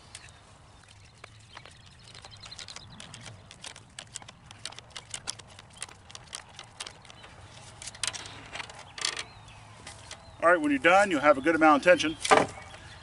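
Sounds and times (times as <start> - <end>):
wire twisting sharp clicks: 2.1 - 9.3.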